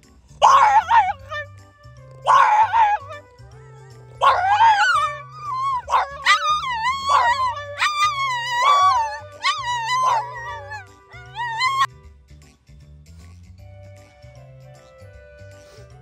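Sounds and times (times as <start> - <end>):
background music with bass: 0.0 - 16.0
dogs howling: 0.4 - 1.5, 2.2 - 3.2, 4.2 - 11.9.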